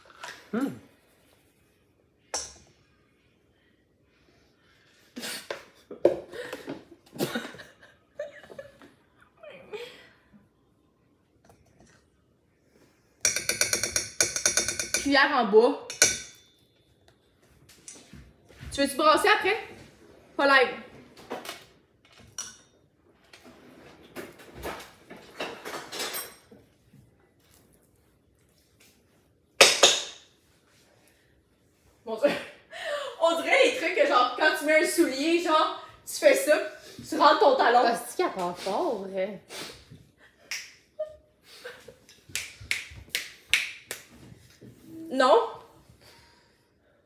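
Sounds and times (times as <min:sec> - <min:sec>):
utensils clinking in metal bowl: 0:13.2 - 0:15.2, 0:15.9 - 0:16.6.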